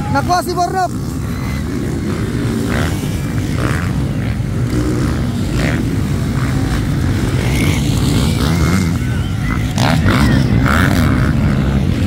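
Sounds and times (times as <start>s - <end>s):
dirt bike engines racing: 0.0s - 12.0s.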